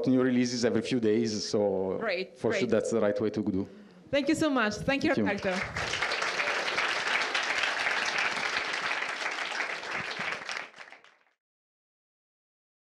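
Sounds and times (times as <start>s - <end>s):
audience applauding: 5.2s - 11.4s.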